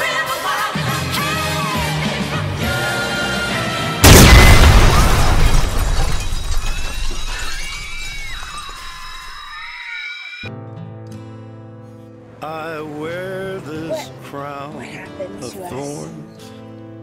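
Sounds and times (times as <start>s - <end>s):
loud crash with shattering: 4.0s - 9.3s.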